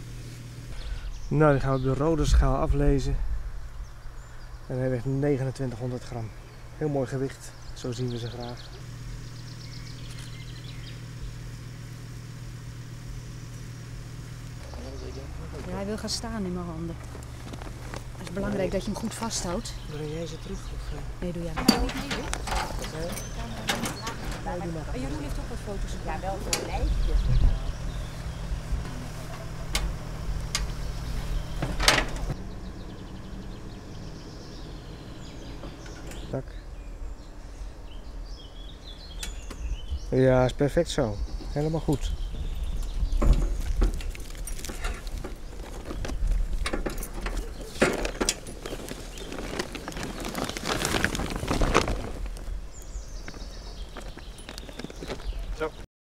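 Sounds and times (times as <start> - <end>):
steady low rumble: 0.0 - 55.7
engine humming: 0.0 - 55.8
metallic clanks: 21.5 - 24.5
cloth bag rustling and knocking: 47.8 - 52.5.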